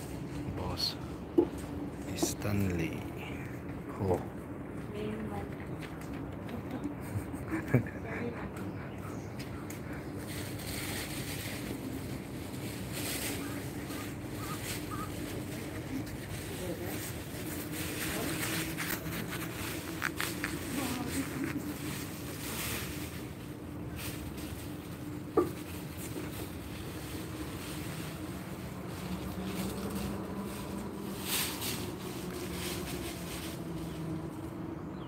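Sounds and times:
steady low hum: 0.0 - 35.0
rustling: 9.4 - 34.5.

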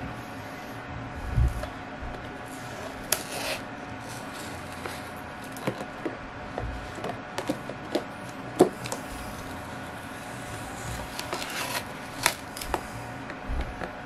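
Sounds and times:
plastic cup rustle: 2.5 - 9.6, 10.6 - 13.0.

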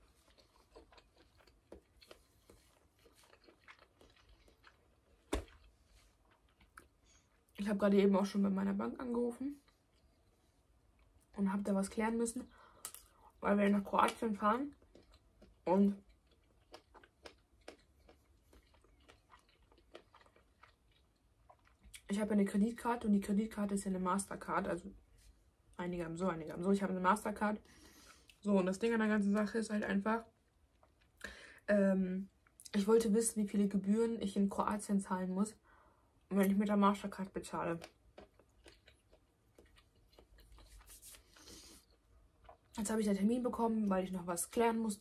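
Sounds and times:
chewing food: 0.0 - 7.6, 14.0 - 22.1, 30.6 - 31.4, 37.7 - 42.8.

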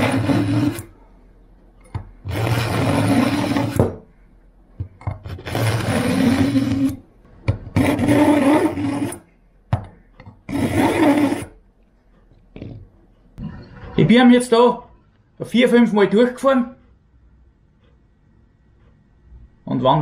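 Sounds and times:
knife rasping on sharpener: 0.0 - 0.9, 2.3 - 3.9, 5.3 - 7.0, 7.8 - 9.3, 10.5 - 11.6.

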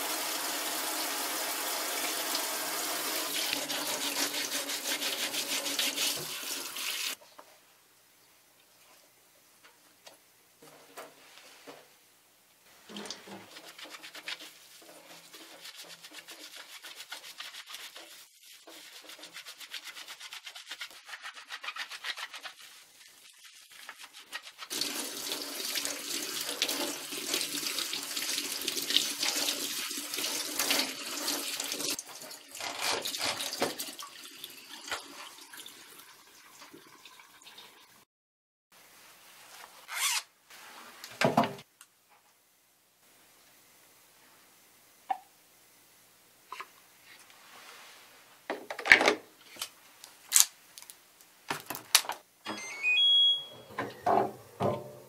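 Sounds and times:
tap water running into metal sink: 0.0 - 7.2, 24.7 - 37.9
brush scrubbing a sneaker: 3.5 - 7.2, 13.2 - 24.8.

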